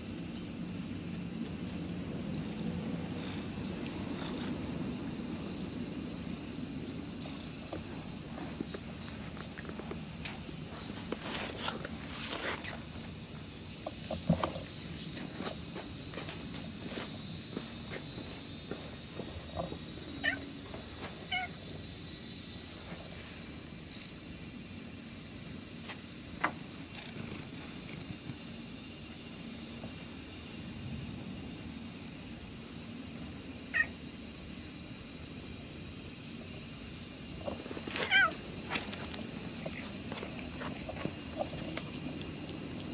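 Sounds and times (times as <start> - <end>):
insects droning: 0.0 - 42.9
cat meowing: 20.2 - 20.4, 38.1 - 38.4.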